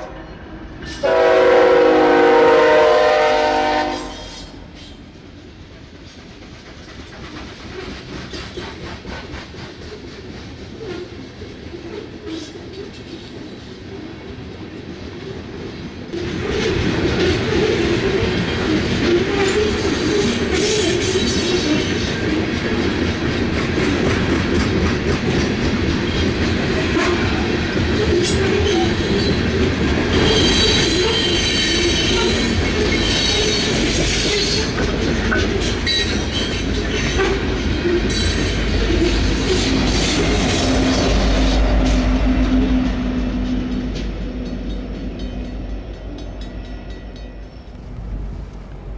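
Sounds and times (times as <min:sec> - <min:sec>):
train rumbling past: 0:00.0 - 0:48.9
train wheels clattering: 0:03.8 - 0:48.9
high wheel squeal: 0:30.1 - 0:34.8.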